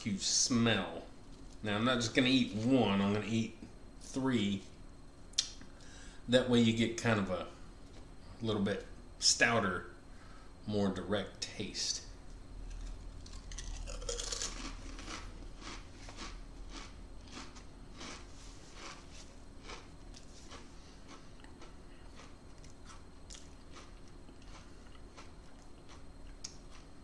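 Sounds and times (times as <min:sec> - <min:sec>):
crunching crisps: 0:12.6 - 0:26.9.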